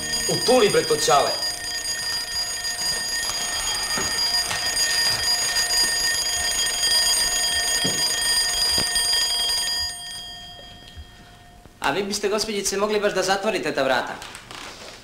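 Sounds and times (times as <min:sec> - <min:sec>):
alarm clock bell ringing: 0:00.0 - 0:11.6.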